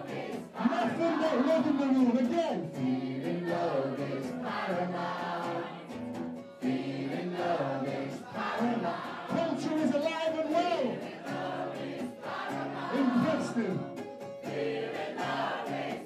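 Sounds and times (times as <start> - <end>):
crowd singing along: 0.0 - 16.0
man singing into a microphone: 0.6 - 5.1, 7.1 - 11.0, 12.9 - 13.8.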